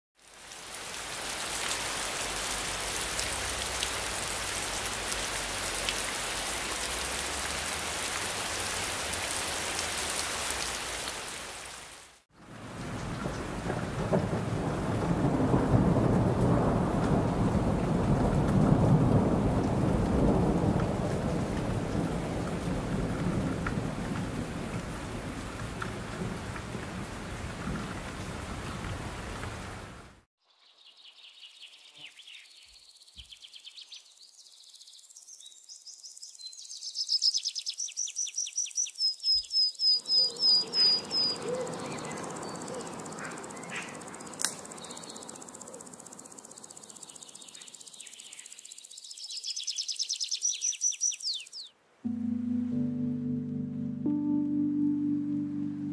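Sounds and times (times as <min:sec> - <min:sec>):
heavy rain hiss: 0:00.2 - 0:30.3, 0:40.4 - 0:49.4
low rumble of thunder: 0:12.5 - 0:29.8.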